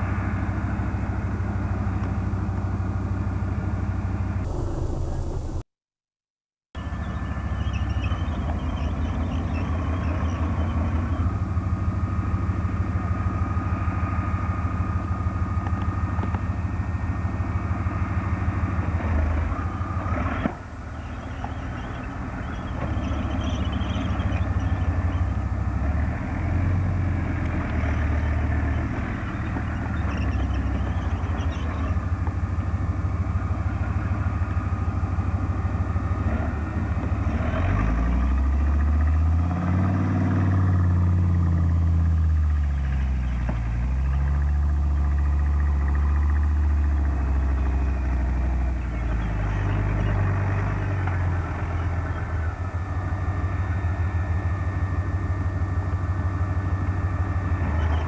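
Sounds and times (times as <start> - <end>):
diesel engine rumble: 0.0 - 5.8, 6.8 - 58.0
thin steady whine: 4.4 - 5.7.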